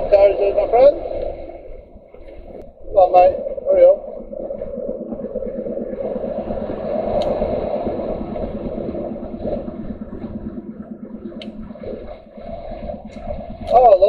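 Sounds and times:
road and tyre noise: 0:01.4 - 0:14.0
diesel engine running: 0:03.0 - 0:14.0
faint clicks: 0:07.1 - 0:07.4, 0:11.3 - 0:11.7.

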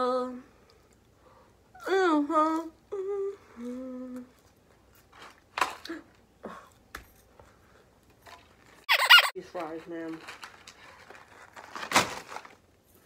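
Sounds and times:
woman humming: 0:01.8 - 0:04.3.

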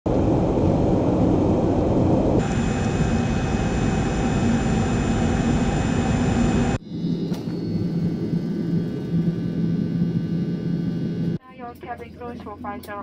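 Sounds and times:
jet engine cabin noise: 0:00.1 - 0:11.4
thin high whine: 0:02.4 - 0:11.4.

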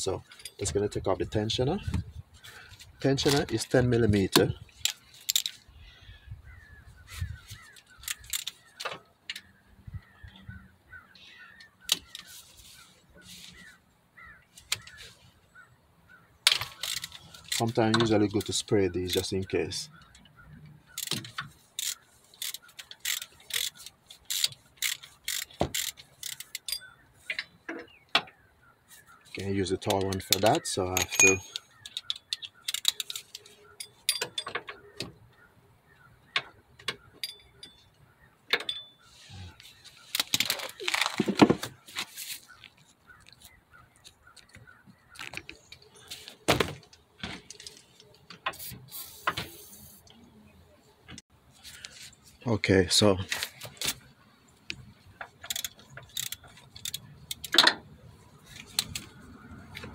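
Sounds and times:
ratchet wrench clicking: 0:21.8 - 0:26.8, 0:55.4 - 0:57.6
metal tools clinking and scraping: 0:30.3 - 0:32.0, 0:32.8 - 0:34.7, 0:37.2 - 0:38.0, 0:38.6 - 0:39.1.

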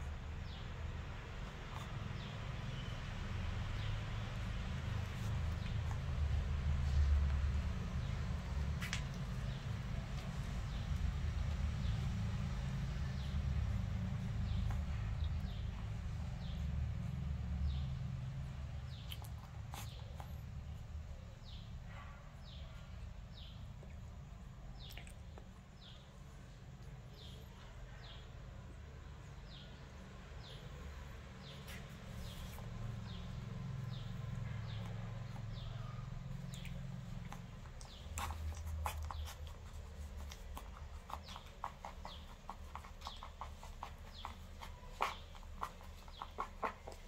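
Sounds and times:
puppies suckling wet clicking: 0:03.8 - 0:21.0, 0:24.8 - 0:26.0, 0:31.7 - 0:47.0.

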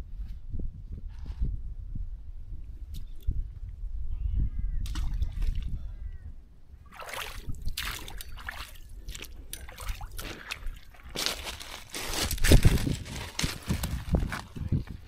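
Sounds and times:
splashing footsteps in water: 0:06.9 - 0:13.8.

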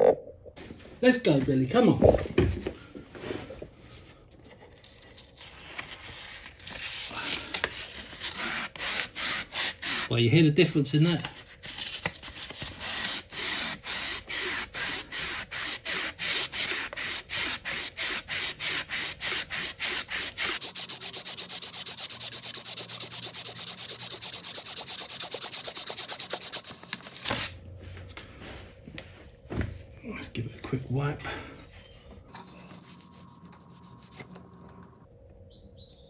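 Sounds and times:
sandpaper rubbing on metal tube: 0:08.2 - 0:10.1, 0:12.7 - 0:27.5, 0:32.4 - 0:34.3.

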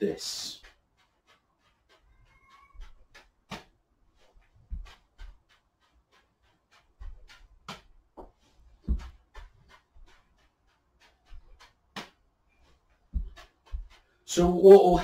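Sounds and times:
juggling balls slapping into hands: 0:02.8 - 0:03.8, 0:11.6 - 0:12.2
dull low thumps: 0:07.0 - 0:10.1, 0:13.1 - 0:13.9.

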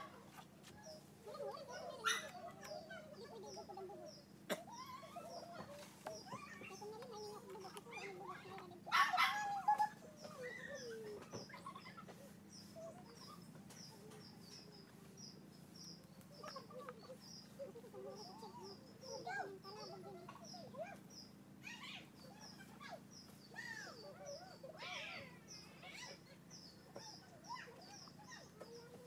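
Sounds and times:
bird chirping: 0:00.8 - 0:29.0
chickens clucking: 0:16.0 - 0:21.1.

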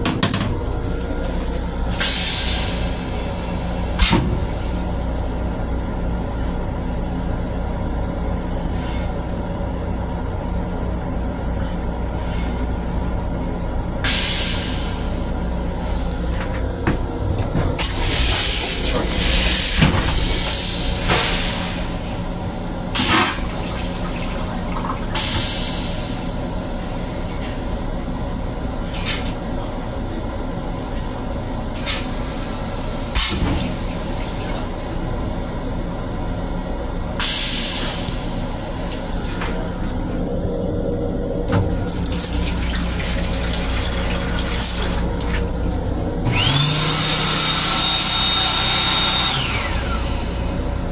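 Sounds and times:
water pump whine: 0:00.0 - 0:07.0, 0:14.0 - 0:35.1, 0:38.2 - 0:50.9
low hum of moving train: 0:00.0 - 0:46.6, 0:47.9 - 0:50.9
steady low rumble: 0:00.0 - 0:46.6
toilet flushing: 0:14.0 - 0:27.8, 0:37.2 - 0:50.9.

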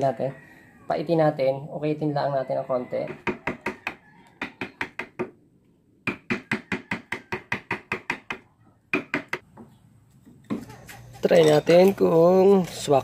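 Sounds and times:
taps on wood chisel: 0:03.1 - 0:05.4, 0:06.0 - 0:09.7.

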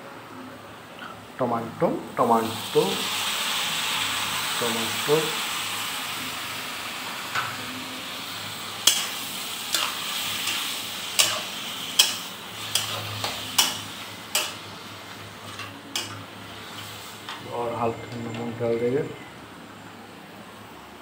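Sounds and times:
vegetables sizzling in oil: 0:02.2 - 0:17.9
spoon scraping a pan: 0:08.8 - 0:17.4.

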